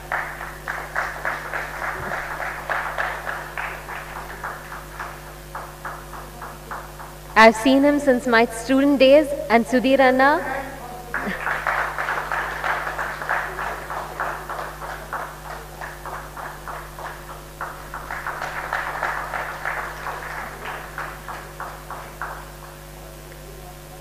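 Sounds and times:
audience applauding: 0.0 - 8.4, 10.2 - 23.7.

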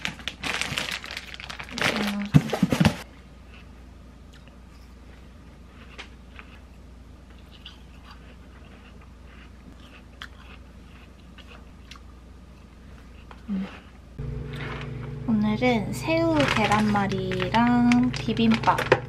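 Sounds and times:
chewing watermelon: 3.2 - 14.9
low hum: 10.7 - 19.0.

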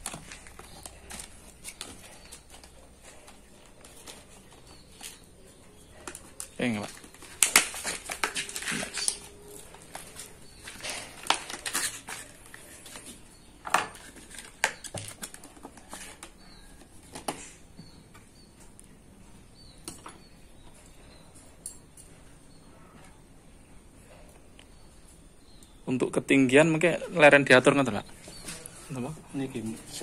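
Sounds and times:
paper packaging crinkling: 6.0 - 13.1.

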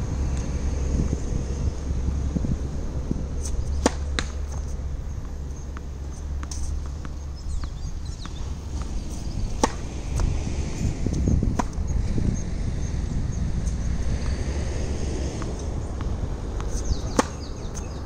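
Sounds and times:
wind rumble on microphone: 0.0 - 18.0
racket hitting tennis ball: 3.3 - 11.9, 15.1 - 18.0
balls bouncing on court: 3.8 - 10.3, 15.4 - 18.0.

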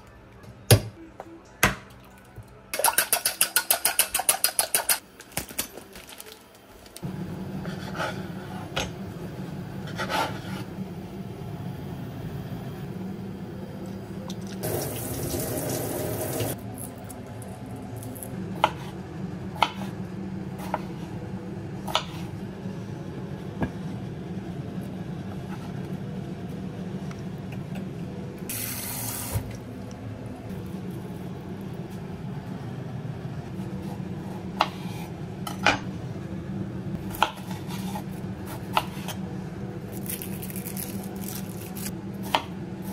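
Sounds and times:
steady low hum: 6.3 - 42.9
kitchen tap running: 14.6 - 16.6.

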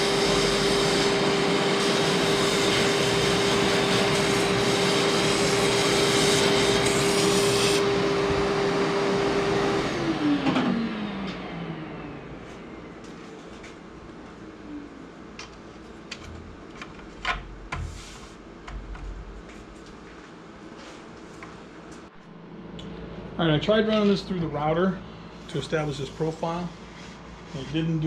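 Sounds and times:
milling machine motor hum: 0.0 - 19.9.

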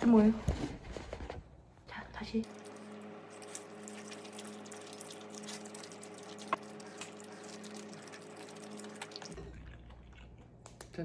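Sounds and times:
chewing: 2.5 - 11.0
slurping noodles: 3.8 - 10.4.

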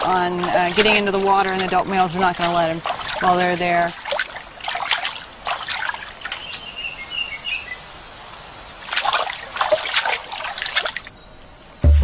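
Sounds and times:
water splashing and trickling: 0.0 - 11.1
bird chirping: 4.6 - 11.9.

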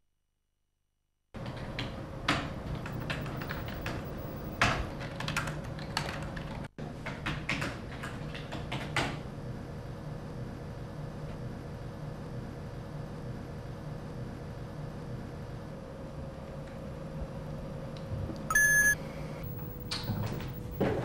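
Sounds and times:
typing on a keyboard: 1.4 - 9.2.

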